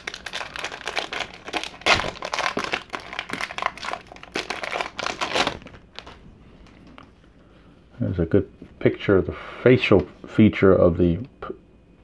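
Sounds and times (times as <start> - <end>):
card pack wrapper crinkling: 0.0 - 7.0.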